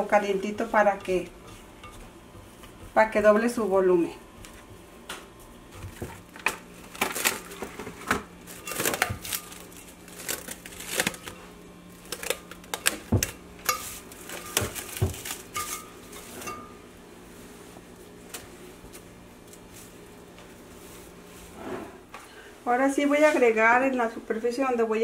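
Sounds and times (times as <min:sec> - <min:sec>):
cling wrap crackling: 0:06.4 - 0:15.9.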